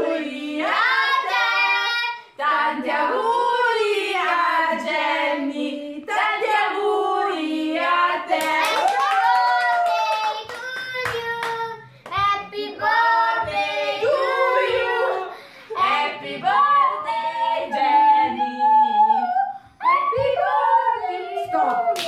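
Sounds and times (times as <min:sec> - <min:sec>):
group singing together: 0:00.0 - 0:09.0, 0:12.2 - 0:22.0
hand claps: 0:08.3 - 0:12.4, 0:21.6 - 0:22.0.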